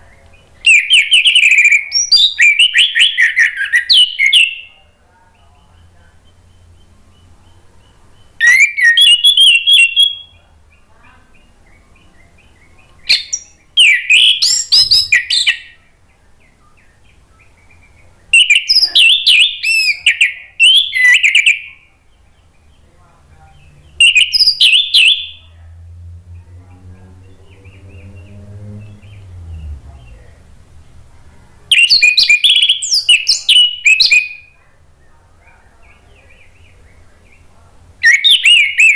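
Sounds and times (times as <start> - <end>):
faint low hum: 0.0 - 38.8
thrush singing: 23.5 - 33.8.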